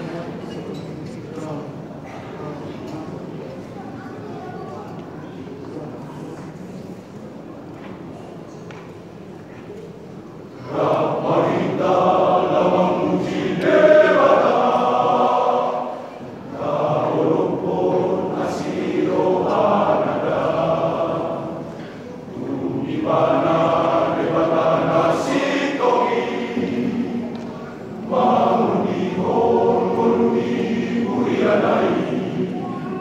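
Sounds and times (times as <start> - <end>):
male choir singing: 10.6 - 33.0.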